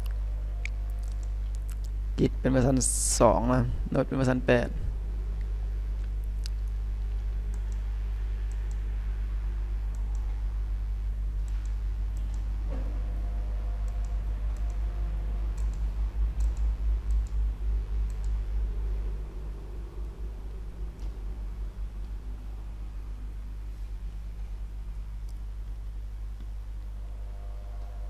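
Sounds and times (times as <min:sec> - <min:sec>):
steady low hum: 0:00.0 - 0:28.0
computer mouse clicks: 0:07.5 - 0:08.9, 0:09.9 - 0:10.4, 0:11.4 - 0:12.5, 0:13.8 - 0:14.8, 0:15.5 - 0:17.4, 0:18.0 - 0:18.4.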